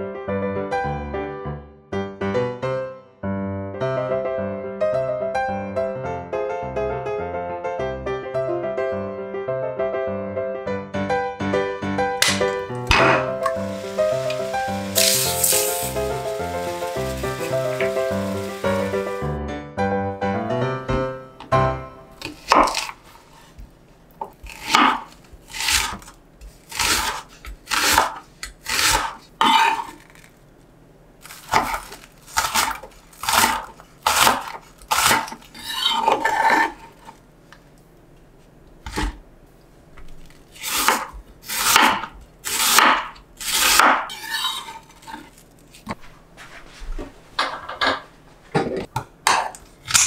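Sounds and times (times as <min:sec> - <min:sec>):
knife slicing onion on wooden board: 0:12.2 - 0:18.6, 0:22.2 - 0:23.6, 0:24.2 - 0:30.0, 0:31.3 - 0:37.1, 0:38.8 - 0:39.2, 0:40.6 - 0:46.0.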